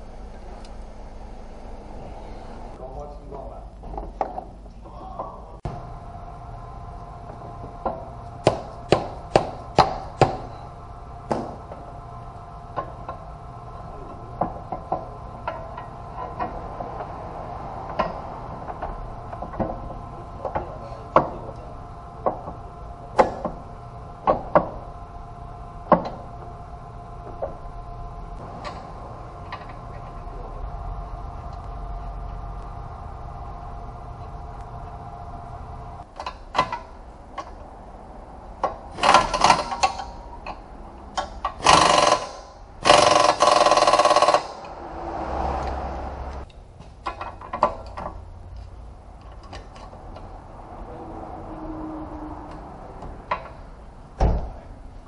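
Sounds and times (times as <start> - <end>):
power tool bursts: 41.6 - 44.7.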